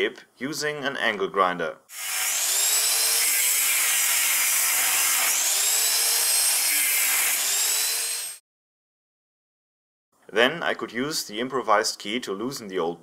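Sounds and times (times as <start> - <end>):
angle grinder cutting steel: 1.9 - 8.4.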